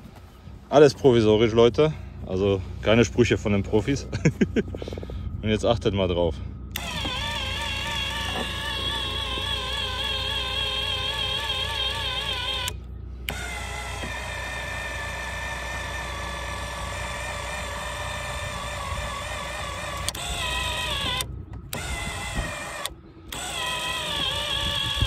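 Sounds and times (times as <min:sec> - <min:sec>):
actuator motor whining: 0:01.3 - 0:25.0.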